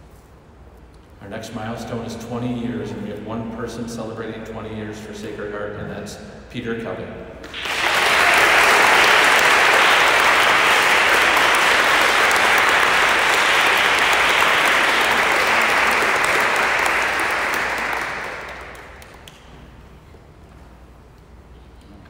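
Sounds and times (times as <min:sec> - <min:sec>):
small crowd applauding: 0:07.4 - 0:19.7.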